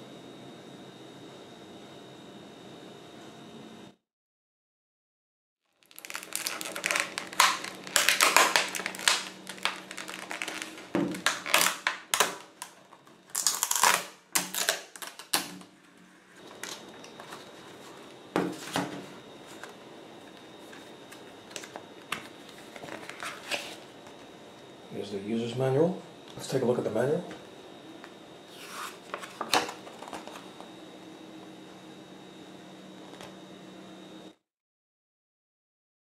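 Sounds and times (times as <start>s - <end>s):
plastic packaging crackling: 5.7s - 15.8s, 28.5s - 30.6s.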